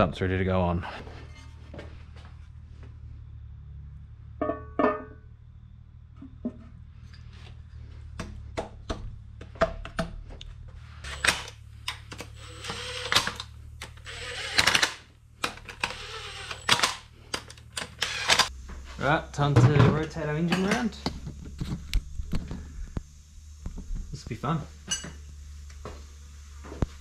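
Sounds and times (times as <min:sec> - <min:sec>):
power tool rattling: 0:11.0 - 0:18.5.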